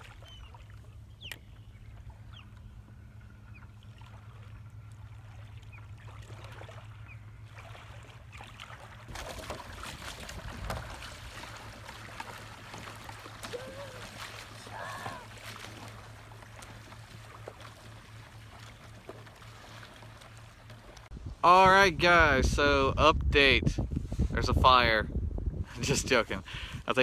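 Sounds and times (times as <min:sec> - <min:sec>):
paddle splashing water: 0:00.0 - 0:21.1
water sloshing and trickling: 0:00.0 - 0:21.2.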